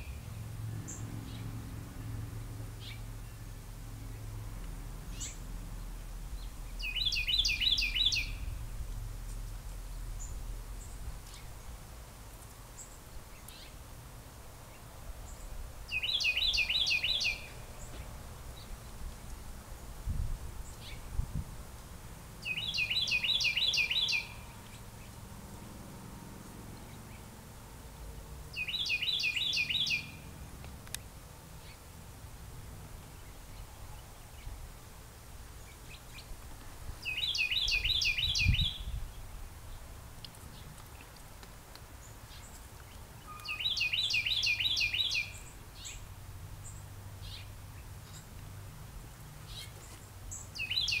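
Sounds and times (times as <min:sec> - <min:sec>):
songbird chirping: 0:00.0 - 0:32.0, 0:32.6 - 0:51.0.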